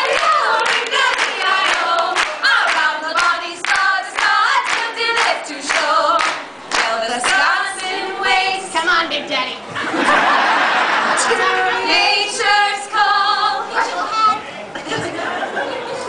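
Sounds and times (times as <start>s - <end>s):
women singing a cappella: 0.0s - 9.7s, 11.1s - 14.1s.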